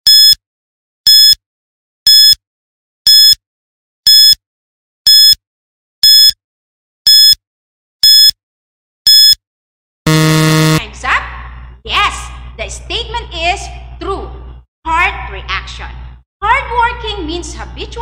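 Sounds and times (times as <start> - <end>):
countdown timer beeping: 0.1 - 0.4, 1.1 - 1.4, 2.1 - 2.4, 3.1 - 3.4, 4.1 - 4.4, 5.1 - 5.4, 6.0 - 6.4, 7.1 - 7.4, 8.0 - 8.3, 9.1 - 9.4, 10.1 - 10.9.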